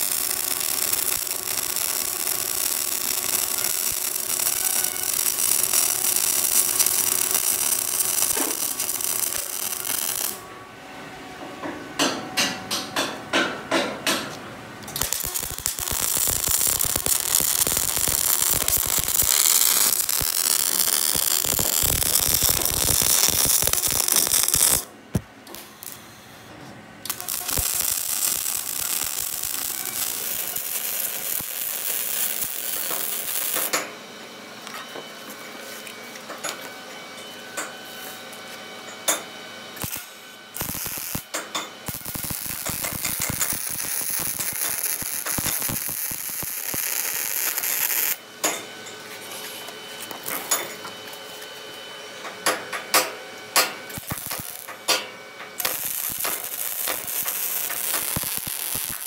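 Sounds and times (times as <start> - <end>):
welding arc crackling: 0.0 - 10.4, 14.8 - 26.0, 27.1 - 33.8, 39.8 - 48.2, 53.6 - 59.0.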